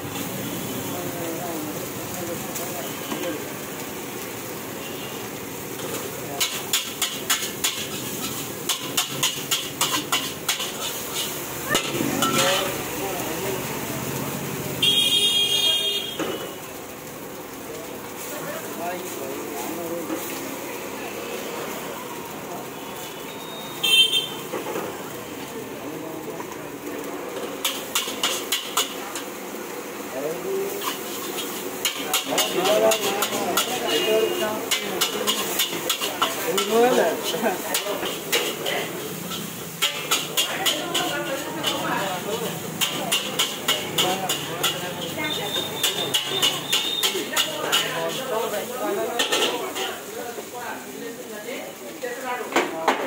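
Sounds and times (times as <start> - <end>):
metal ladle clanking on wok: 27.6 - 29.3, 34.6 - 41.9, 42.8 - 48.2, 49.2 - 49.8
murmur of voices: 28.8 - 53.0.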